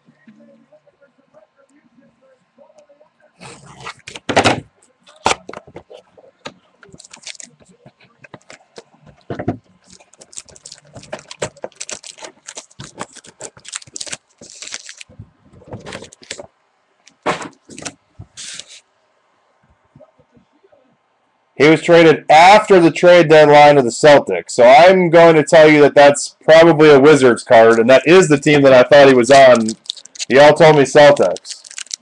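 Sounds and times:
cardboard and wrapper crinkling: 0:05.1 - 0:16.5, 0:29.4 - 0:32.0.

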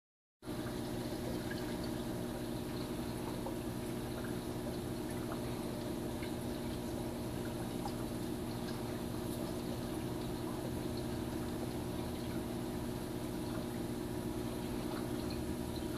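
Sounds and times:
low pump hum: 0:00.4 - 0:15.9
small water drips: 0:00.4 - 0:15.9
water trickling: 0:00.4 - 0:15.9.

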